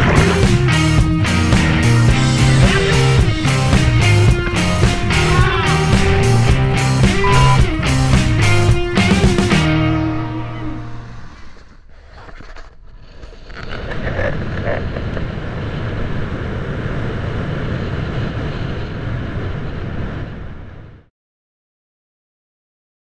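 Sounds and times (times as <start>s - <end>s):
music: 0.0s - 11.4s
low rumbling noise: 0.0s - 11.7s, 13.8s - 21.1s.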